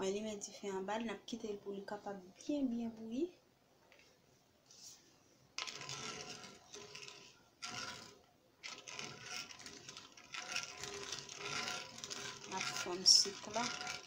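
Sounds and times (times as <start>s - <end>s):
spoon scraping metal pot: 5.6s - 14.0s.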